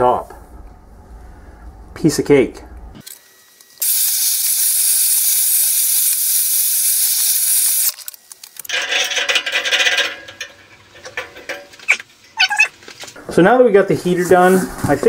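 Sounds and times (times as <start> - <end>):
gas torch flame hissing: 3.8 - 8.0.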